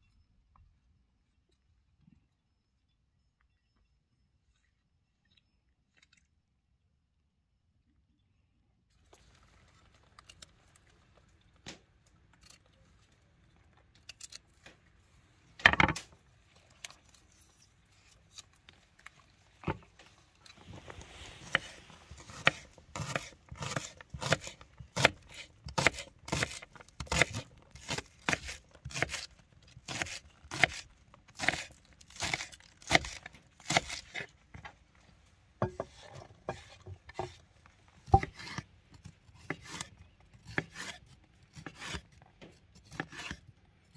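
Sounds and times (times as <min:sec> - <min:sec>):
rustle: 0:16.4 - 0:23.8
knife chopping on wooden board: 0:21.4 - 0:29.3.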